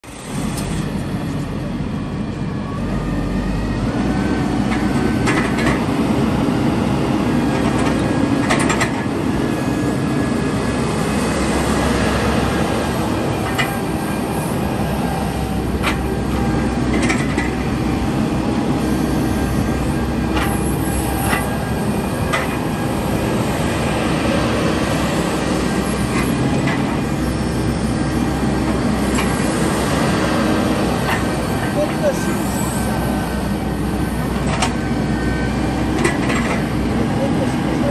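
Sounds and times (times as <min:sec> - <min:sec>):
excavator diesel engine running: 0:00.0 - 0:37.9
hydraulics working: 0:00.0 - 0:37.9
sharp clicks and knocks: 0:07.6 - 0:09.1, 0:16.9 - 0:17.5.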